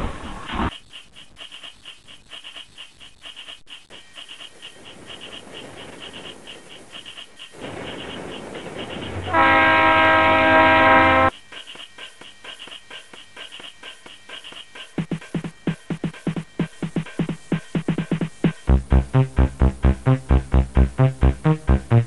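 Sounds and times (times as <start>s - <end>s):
hiss of steam: 4.2s - 9.3s
steam train whistle blast: 9.3s - 11.3s.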